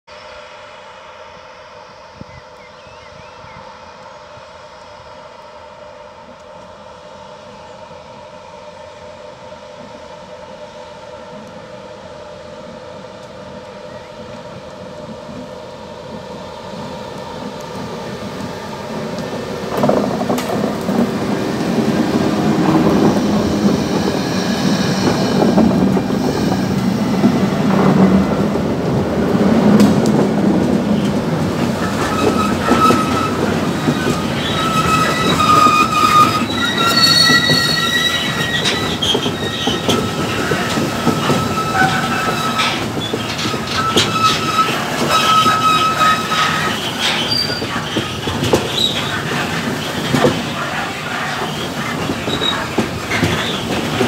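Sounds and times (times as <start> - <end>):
diesel locomotive engines: 0.1 - 54.0
wagons rolling past: 18.4 - 54.0
high-pitched wheel squeals: 31.8 - 54.0.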